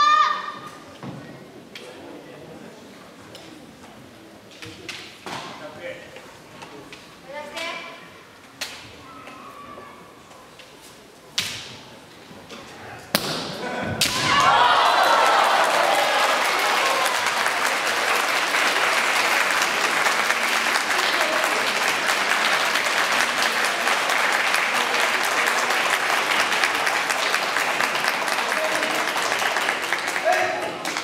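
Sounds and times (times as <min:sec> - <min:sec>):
shouting voices: 0:13.7 - 0:17.2
audience applauding: 0:14.4 - 0:31.0.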